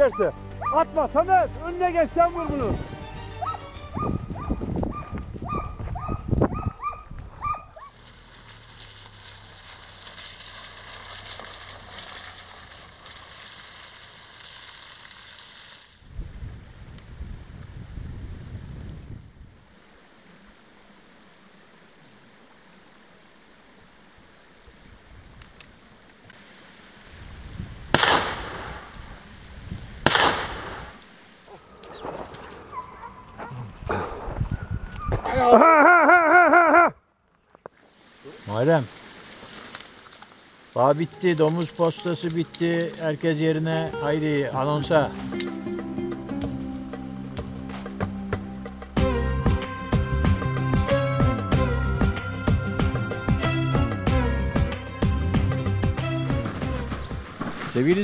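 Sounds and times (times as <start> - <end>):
dogs barking: 0.0 - 0.9, 3.4 - 8.0, 31.5 - 35.2
rushing hiss of outdoor noise: 7.8 - 34.6, 37.6 - 58.0
shotgun shots echoing: 28.0 - 29.0, 30.0 - 31.0.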